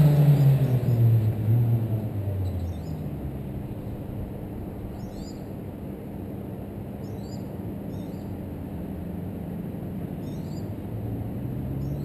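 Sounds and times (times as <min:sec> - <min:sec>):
faint distant engine hum: 0:00.0 - 0:12.0
low outdoor rumble: 0:00.0 - 0:12.0
small bird chirping: 0:02.4 - 0:03.1, 0:04.8 - 0:05.6, 0:10.2 - 0:10.8.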